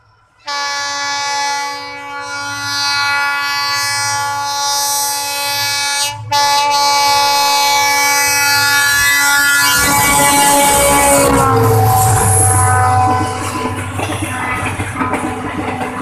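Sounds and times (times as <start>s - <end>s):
locomotive and wheels rumbling: 0.0s - 16.0s
locomotive horn blast: 0.4s - 13.8s.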